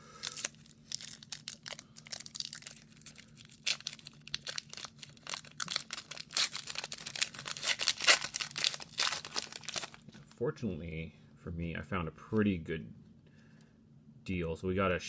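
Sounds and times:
foil wrapper crinkling: 0.2s - 10.1s.

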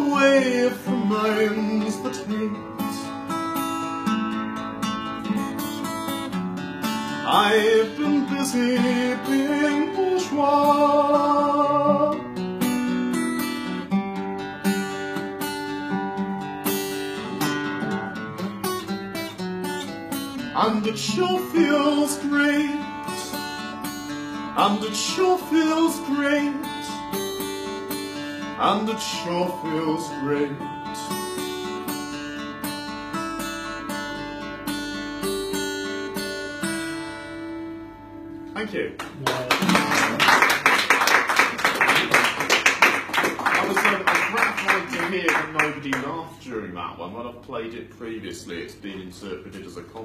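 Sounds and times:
person singing: 0.0s - 3.2s, 7.2s - 12.2s, 20.6s - 23.3s, 28.6s - 31.2s
acoustic guitar strumming: 0.0s - 46.2s.

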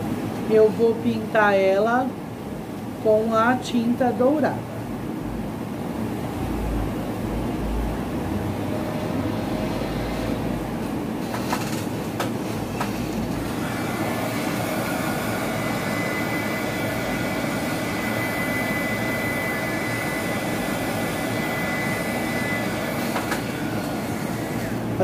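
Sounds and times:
heat gun high whine: 13.0s - 25.0s.

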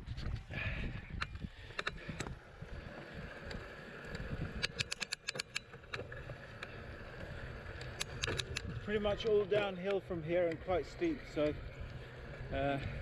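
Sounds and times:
wind on microphone: 0.0s - 4.9s, 8.2s - 9.2s
bike clicks and rattles: 0.0s - 13.0s.

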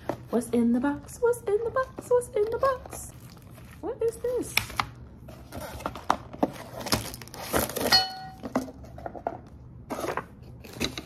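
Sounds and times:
cardboard packaging rustling: 2.4s - 10.9s.

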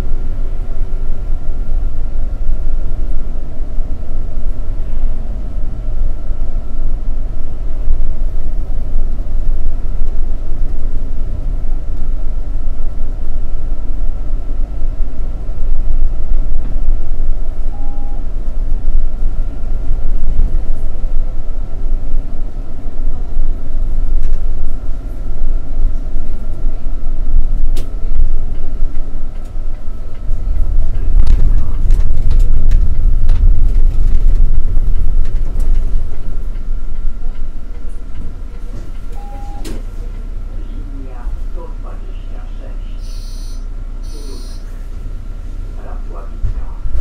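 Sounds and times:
bus engine and road rumble: 0.0s - 47.0s
thin steady whine: 35.9s - 47.0s.

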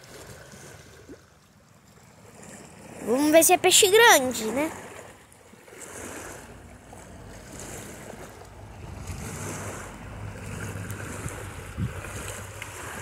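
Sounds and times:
waves washing on rocky shore: 2.0s - 13.0s
wind rumbling on microphone: 5.8s - 13.0s.

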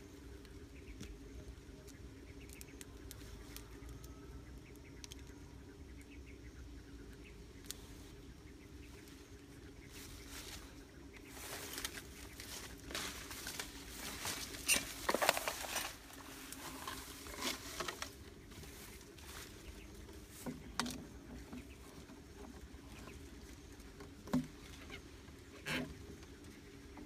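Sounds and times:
faint low hum: 0.0s - 27.0s
rustling through grass and leaves: 7.3s - 27.0s.

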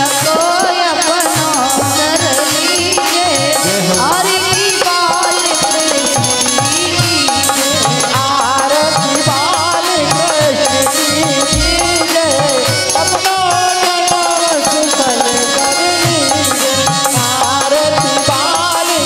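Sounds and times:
hand drum beat: 3.1s - 15.2s
wavering melody line: 11.2s - 13.1s.

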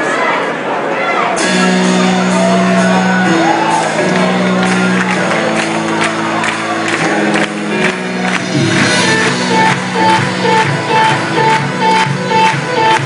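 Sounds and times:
crowd whooping and shouting: 0.0s - 13.0s
rock band playing live: 1.4s - 13.0s
drum and cymbal hits: 8.0s - 13.0s.

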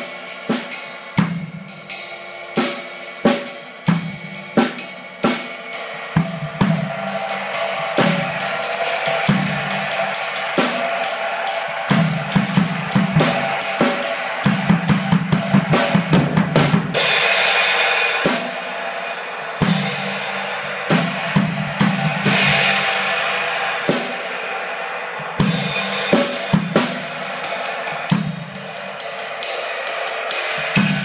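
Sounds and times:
cymbal washes ringing: 0.0s - 16.1s
ride cymbal strokes: 0.0s - 16.2s, 16.9s - 31.0s.

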